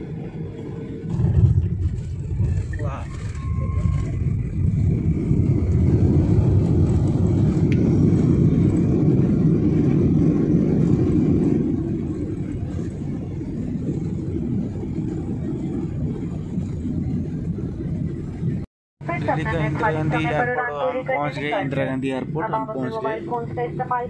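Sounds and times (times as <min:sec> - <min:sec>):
jet engine roar in cabin: 0:00.0 - 0:24.0
landing-roll rumble: 0:00.3 - 0:18.6.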